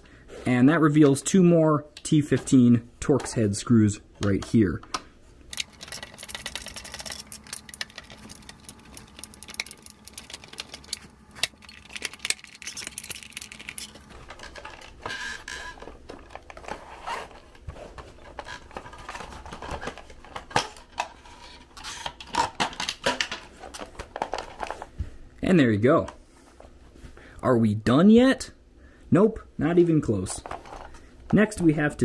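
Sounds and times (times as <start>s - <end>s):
plastic parts rattling: 5.5s - 21.2s, 21.8s - 24.9s.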